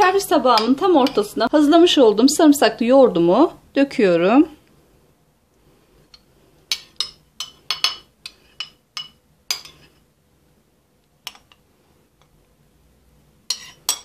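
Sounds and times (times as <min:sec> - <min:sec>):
metal spoon clinking against bowl: 0:06.7 - 0:09.8, 0:13.5 - 0:14.0.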